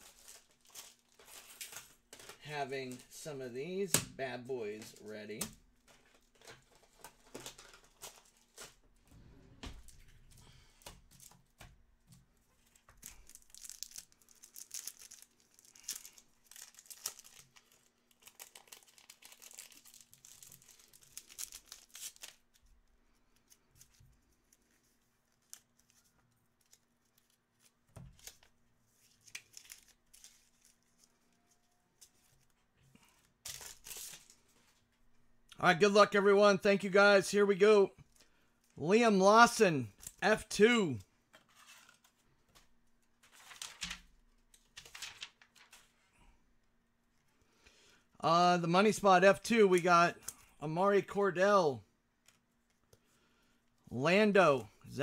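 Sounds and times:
wrappers tearing and crinkling: 0.0 - 3.3, 5.8 - 8.9, 12.6 - 22.6, 23.2 - 32.6, 33.3 - 34.6, 43.1 - 45.9.

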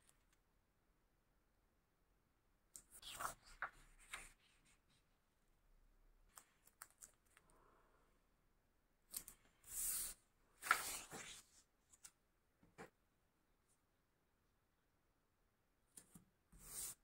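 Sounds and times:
light paper clicks: 6.3 - 7.5.

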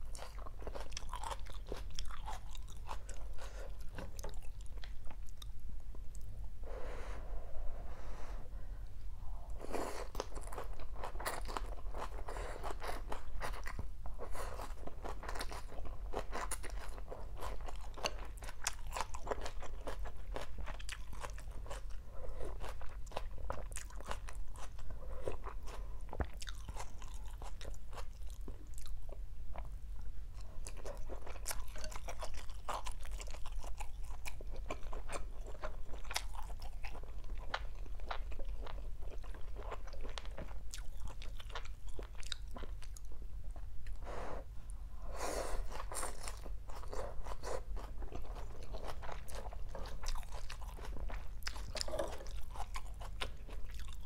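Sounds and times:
wet chewing crunches: 0.0 - 5.4, 45.7 - 54.0.

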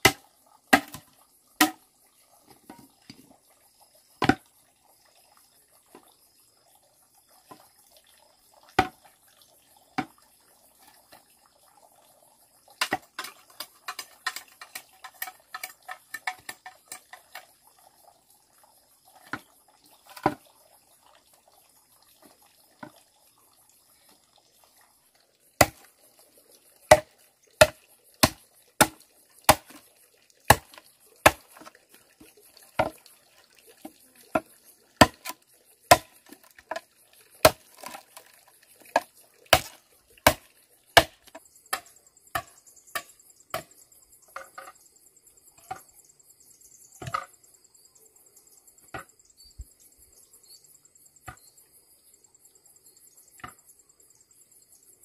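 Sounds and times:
wood being chopped: 0.0 - 1.8, 4.2 - 4.4, 12.8 - 17.1, 25.6 - 25.9, 26.9 - 29.8, 30.5 - 31.7, 34.4 - 36.8, 37.4 - 38.0, 38.9 - 40.4, 41.0 - 43.7.

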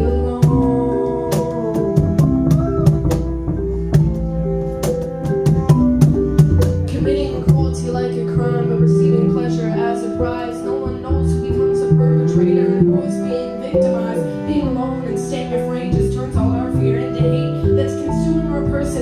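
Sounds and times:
cello: 0.0 - 19.0
flute: 0.4 - 14.2
drum beat: 1.3 - 4.2, 4.8 - 7.8.

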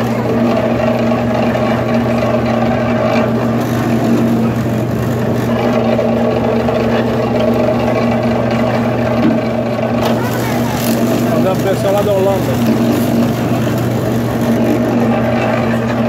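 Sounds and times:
juice mill motor humming: 0.0 - 16.0
rollers crushing sugarcane: 0.0 - 16.0.

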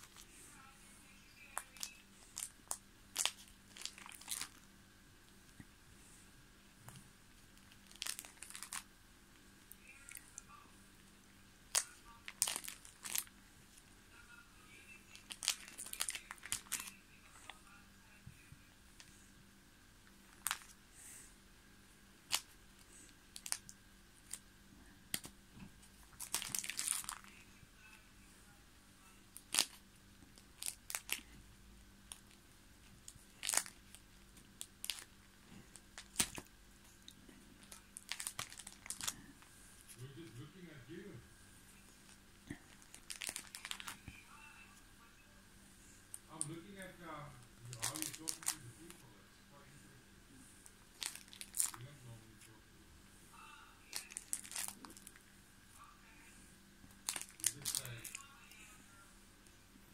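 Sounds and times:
plastic pages crinkling: 1.4 - 4.7, 7.6 - 8.9, 11.7 - 13.4, 15.1 - 17.6, 20.3 - 20.8, 22.2 - 24.4, 25.1 - 27.5, 29.3 - 31.4, 32.1 - 40.4, 41.8 - 44.2, 47.6 - 49.1, 50.9 - 52.0, 53.9 - 55.2, 56.9 - 58.3.

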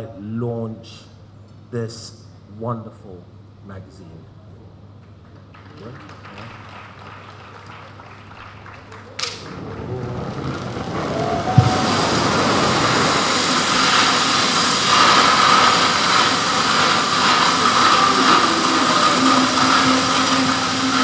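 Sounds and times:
spark fountains hissing: 9.2 - 21.0.

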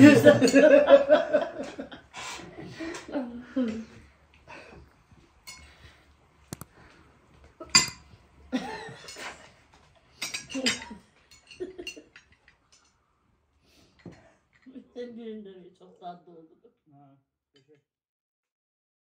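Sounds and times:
utensils and dishes clinking: 5.4 - 5.9, 7.6 - 13.0.

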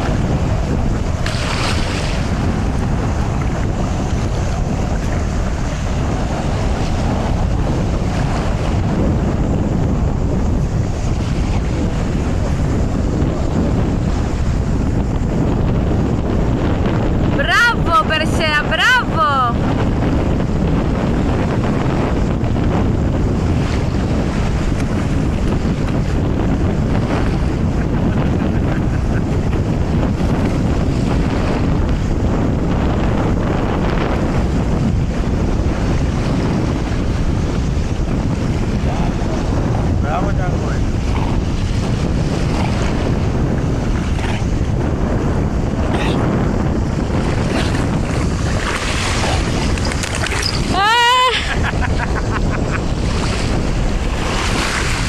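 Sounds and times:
sea water lapping: 0.0 - 15.8, 35.1 - 55.0
wind rumbling on microphone: 0.0 - 55.0.

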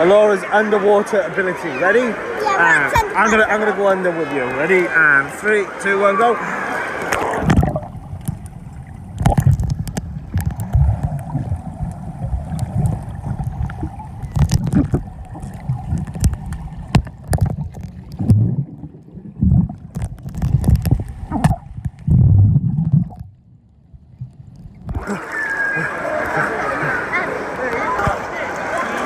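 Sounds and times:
muffled underwater water sloshing: 6.5 - 29.0
sharp clicks and knocks: 12.8 - 18.4.

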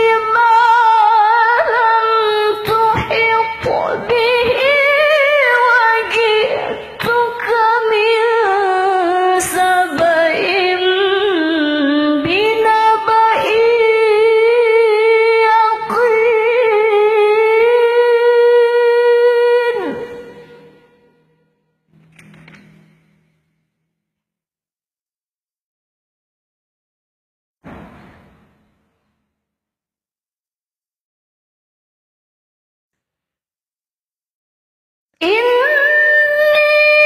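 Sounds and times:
woman reciting melodically: 0.0 - 20.5, 35.2 - 37.0.

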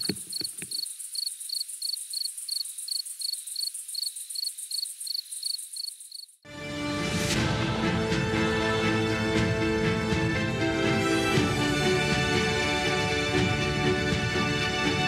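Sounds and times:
crickets chirping: 0.0 - 6.4
music: 6.5 - 15.0.

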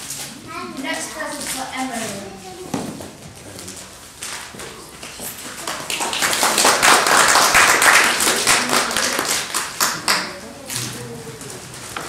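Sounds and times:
audience clapping: 5.0 - 10.5.

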